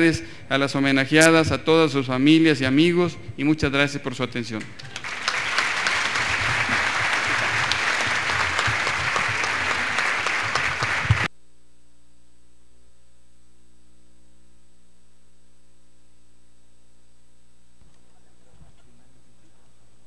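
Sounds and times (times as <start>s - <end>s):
faint steady hum: 0.0s - 20.0s
audience applauding: 4.6s - 11.3s.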